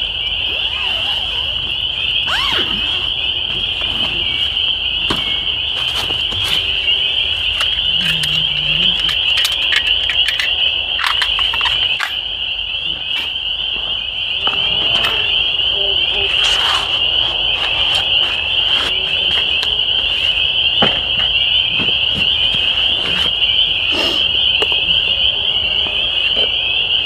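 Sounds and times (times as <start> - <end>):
frogs calling: 0.0 - 27.0
folding saw clicking and rattling: 7.4 - 12.2.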